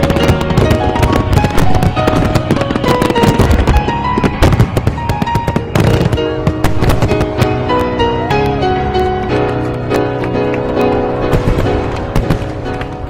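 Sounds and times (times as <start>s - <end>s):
background music with held notes: 0.0s - 13.0s
fireworks bursting and crackling: 0.0s - 13.0s.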